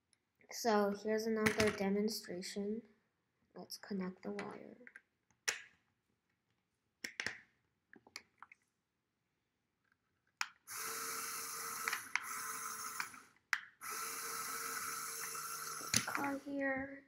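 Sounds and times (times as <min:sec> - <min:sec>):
toy electric motor whirring: 0:10.7 - 0:16.6.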